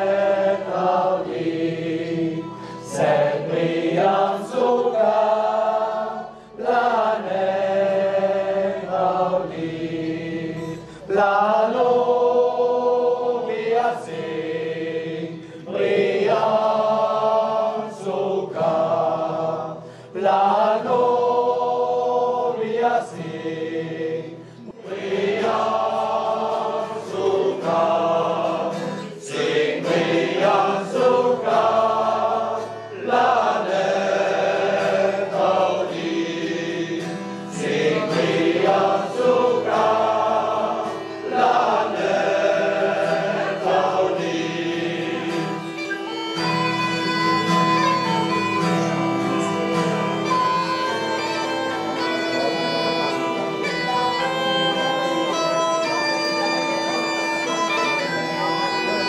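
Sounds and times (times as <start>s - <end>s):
mixed choir singing folk song: 0.0s - 59.0s
bagpipe drone and melody: 38.2s - 59.0s.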